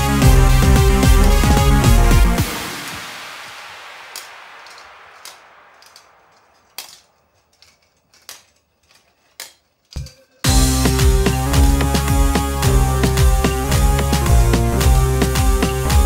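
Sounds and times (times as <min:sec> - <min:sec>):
background music: 0:00.0 - 0:03.3, 0:10.4 - 0:16.0.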